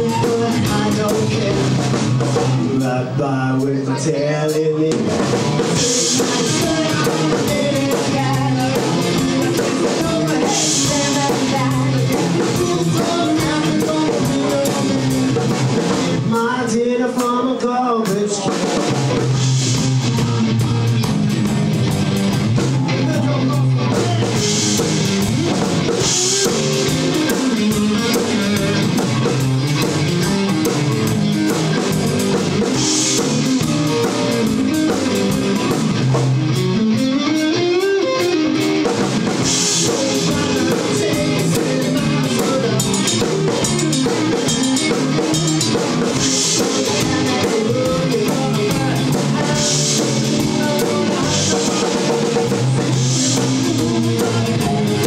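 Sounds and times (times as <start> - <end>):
bass guitar: 0.0 - 55.0
drum kit: 0.0 - 55.0
electric guitar: 0.0 - 55.0.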